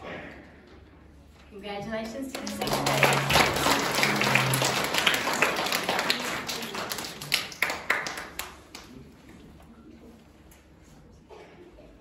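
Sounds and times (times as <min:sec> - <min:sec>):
audience applauding: 0:02.1 - 0:09.0.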